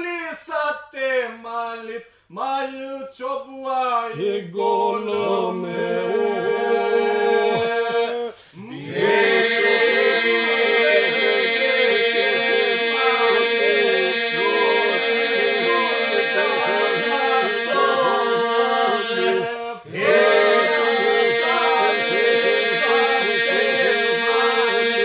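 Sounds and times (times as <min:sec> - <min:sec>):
held vocal drone: 0:04.2 - 0:25.0
male group singing: 0:04.2 - 0:25.0.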